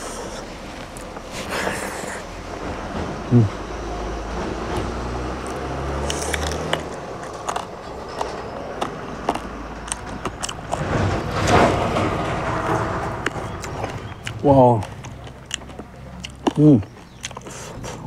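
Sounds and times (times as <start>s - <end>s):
biting and chewing: 4.7s - 18.0s
low rumble: 6.8s - 16.1s.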